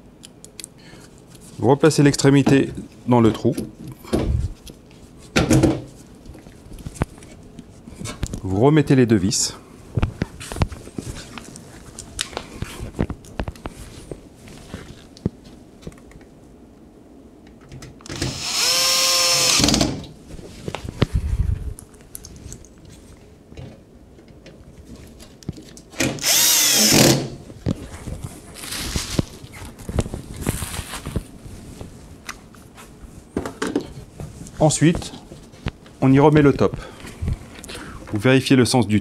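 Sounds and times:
cordless screwdriver motor whine: 18.1s - 19.8s, 26.2s - 27.2s.

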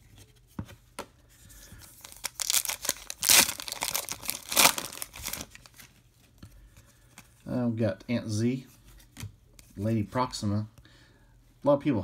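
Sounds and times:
foil wrapper crinkling and ripping: 1.9s - 5.8s.

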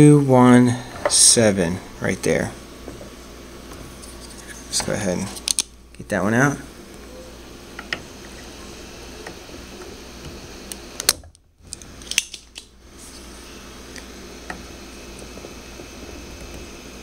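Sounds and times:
steady background hum: 0.0s - 17.0s
desoldering pump clicks and snaps: 4.8s - 6.0s, 10.2s - 12.7s.

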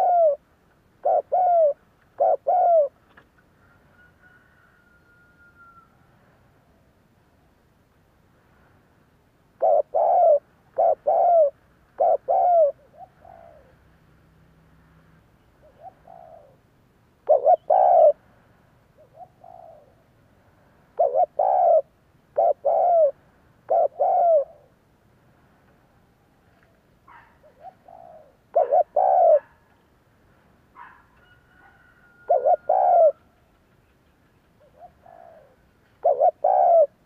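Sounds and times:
dove cooing: 0.0s - 0.4s, 1.0s - 3.0s, 9.6s - 13.8s, 15.6s - 16.6s, 17.2s - 18.2s, 19.0s - 20.0s, 21.0s - 24.8s, 27.1s - 29.6s, 30.8s - 33.4s, 34.6s - 37.0s.

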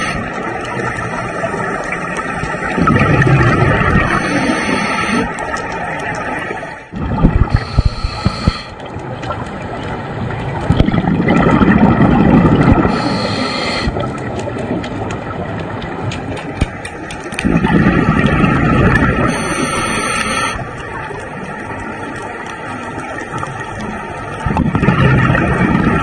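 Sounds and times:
regulator bubbles rumbling: 0.0s - 26.0s
inhalation hiss: 4.1s - 5.3s, 7.5s - 8.8s, 12.8s - 14.0s, 19.3s - 20.6s
sharp clicks and knocks: 14.1s - 17.6s.

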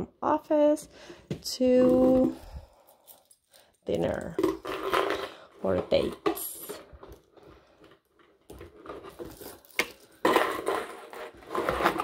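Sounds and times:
metal chain clinking: 2.8s - 5.2s, 9.2s - 10.9s.

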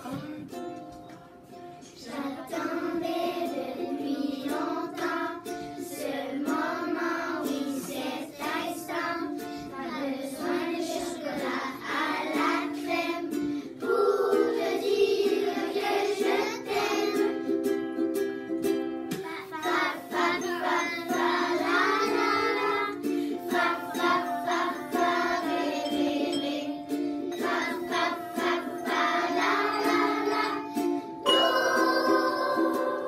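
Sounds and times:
children singing in unison: 1.9s - 17.4s, 19.4s - 33.0s.

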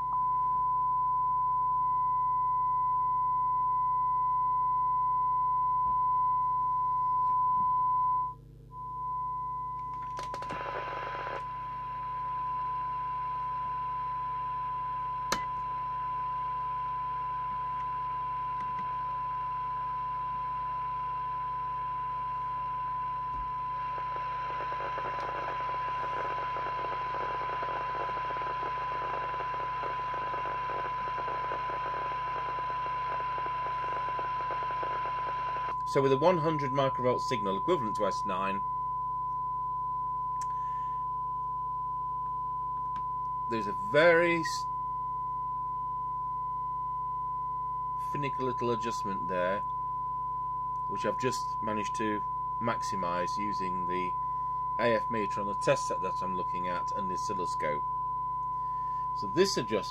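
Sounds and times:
radio hiss: 10.4s - 11.5s, 23.7s - 38.5s, 54.8s - 57.8s, 59.2s - 59.9s
steady test tone: 48.0s - 59.9s.

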